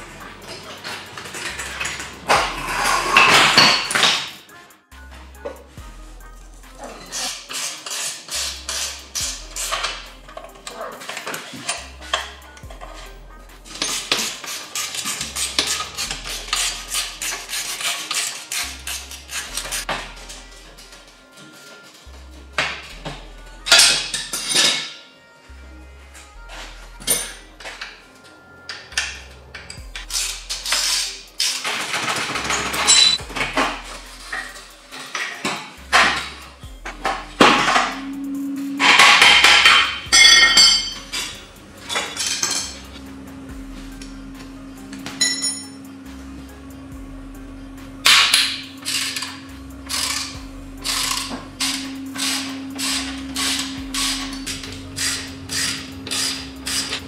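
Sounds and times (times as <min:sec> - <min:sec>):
background music with bass: 0:00.0 - 0:24.8, 0:25.5 - 0:57.0
metal tools clinking and tapping: 0:00.2 - 0:04.5, 0:06.8 - 0:13.1, 0:13.7 - 0:22.0, 0:22.6 - 0:25.1, 0:27.0 - 0:28.1, 0:28.7 - 0:38.2, 0:38.8 - 0:43.1, 0:44.8 - 0:45.9, 0:48.0 - 0:57.0
scraping strokes: 0:06.8 - 0:12.3, 0:13.7 - 0:20.4, 0:48.6 - 0:57.0
low hum: 0:36.2 - 0:57.0
ringing metal clink: 0:38.9 - 0:42.9, 0:45.2 - 0:45.8.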